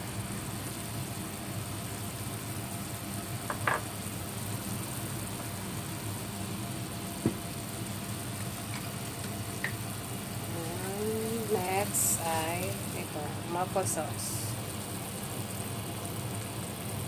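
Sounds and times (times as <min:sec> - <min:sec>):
spatula knocking against pan: 0:03.5 - 0:03.9
steady low hum: 0:04.0 - 0:16.9.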